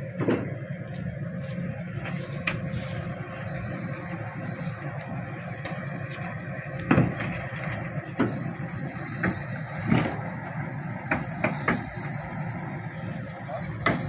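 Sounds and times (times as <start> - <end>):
diesel engine running: 0.0 - 14.0
metallic clanks of steel tracks: 5.6 - 10.3.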